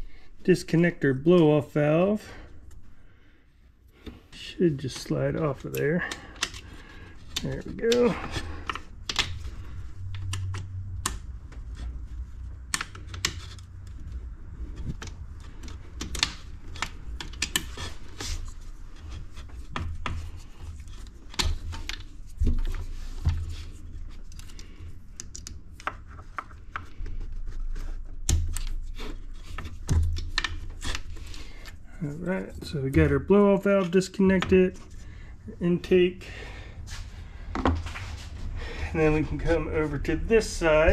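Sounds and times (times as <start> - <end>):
hand tools tapping plastic and metal: 29.4 - 31.7.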